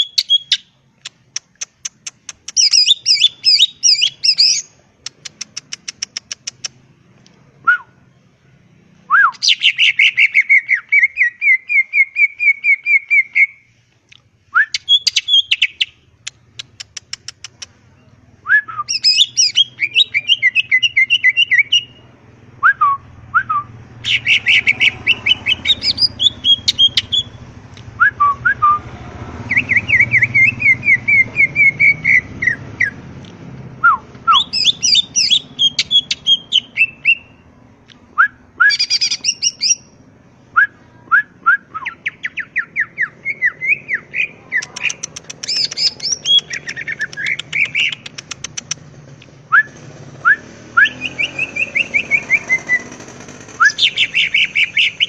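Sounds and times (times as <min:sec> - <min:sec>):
bird chirping and whistling: 0:00.0 - 0:00.7, 0:02.0 - 0:04.7, 0:09.1 - 0:13.6, 0:14.5 - 0:16.0, 0:18.5 - 0:22.0, 0:22.6 - 0:27.4, 0:29.5 - 0:33.0, 0:33.8 - 0:37.4, 0:38.2 - 0:40.0, 0:40.6 - 0:48.7, 0:49.5 - 0:53.0, 0:53.6 - 0:55.0.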